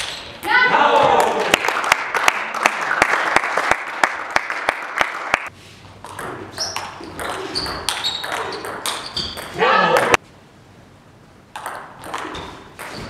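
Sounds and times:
short high squeaks: 0:06.6 - 0:09.6.

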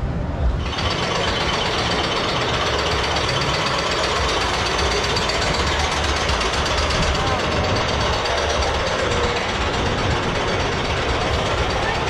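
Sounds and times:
lift chain rattling: 0:00.6 - 0:12.0.

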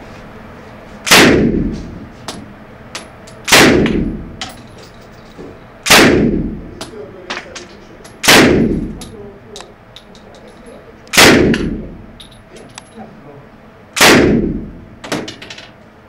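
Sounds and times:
gunshots echoing indoors: 0:01.0 - 0:01.8, 0:03.5 - 0:04.4, 0:05.8 - 0:06.7, 0:08.2 - 0:09.1, 0:11.1 - 0:12.2, 0:14.0 - 0:15.3
faint clicks and clinks: 0:04.4 - 0:05.4, 0:09.0 - 0:10.9, 0:12.2 - 0:13.1.

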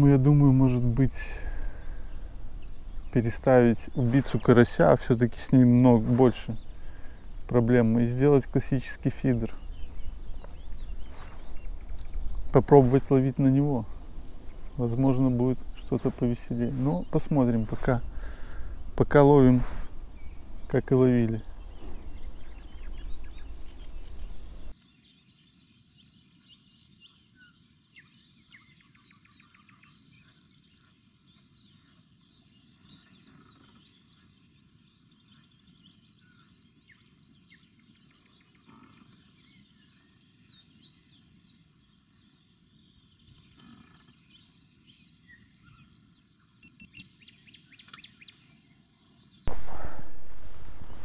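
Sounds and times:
small birds chirping: 0:00.0 - 0:51.0
wind buffeting microphone: 0:01.0 - 0:07.6, 0:09.0 - 0:24.7, 0:49.5 - 0:51.0.

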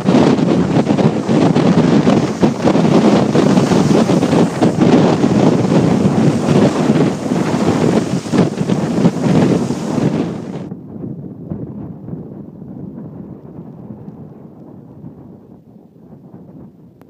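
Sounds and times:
wind buffeting microphone: 0:00.0 - 0:17.0
waves breaking against rocks: 0:00.1 - 0:10.7.

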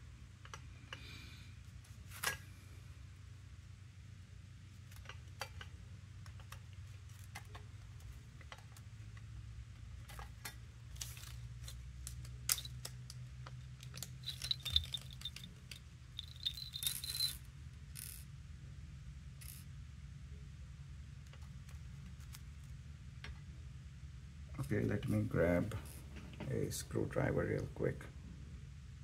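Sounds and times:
tiny screws rattling on table: 0:11.0 - 0:18.3, 0:19.4 - 0:19.7
plastic bag crinkling: 0:13.8 - 0:17.3.

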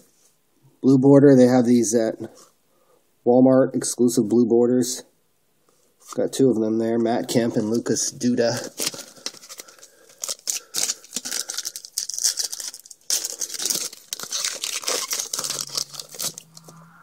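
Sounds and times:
foil wrapper crinkling and tearing: 0:07.8 - 0:16.7.

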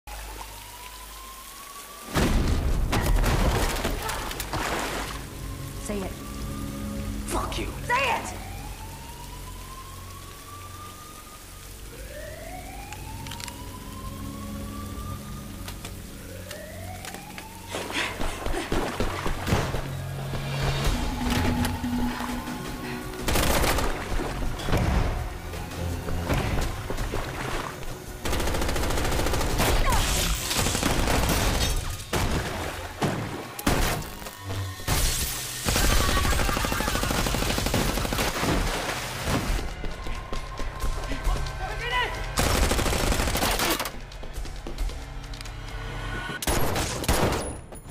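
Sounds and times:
siren wailing: 0:00.1 - 0:03.2, 0:03.9 - 0:31.0, 0:33.5 - 0:38.0, 0:39.4 - 0:43.2
rain-like hiss: 0:00.1 - 0:37.2
low hum: 0:19.0 - 0:29.3
rapid gunfire: 0:35.6 - 0:38.7, 0:42.4 - 0:43.9.

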